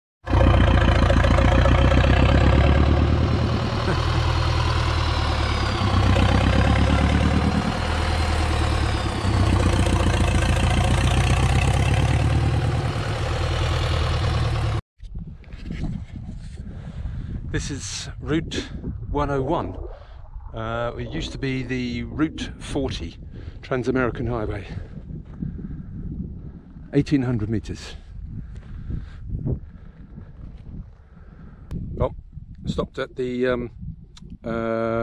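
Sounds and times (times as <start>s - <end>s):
pumpjack engine running: 0.3s - 14.8s.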